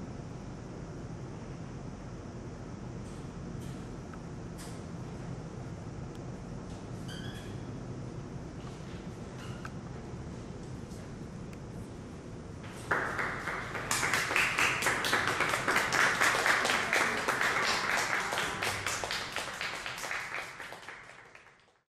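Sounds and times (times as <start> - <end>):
audience applauding: 12.8 - 21.8.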